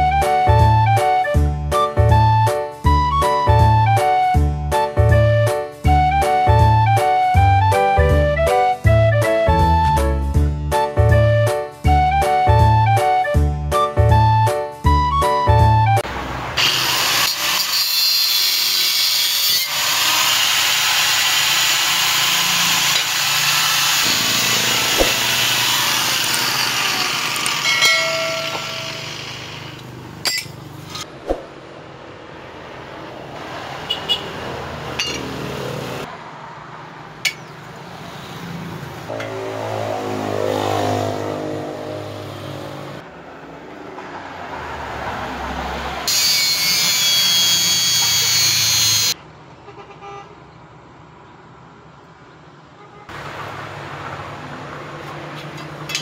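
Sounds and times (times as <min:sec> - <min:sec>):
angle grinder grinding steel: 0:16.6 - 0:31.1, 0:46.1 - 0:49.2.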